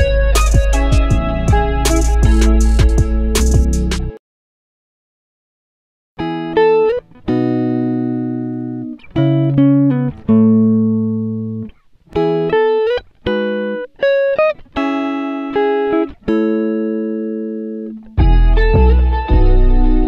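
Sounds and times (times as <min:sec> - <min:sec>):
melody of struck notes and chords: 0:00.0 - 0:04.2, 0:18.2 - 0:20.0.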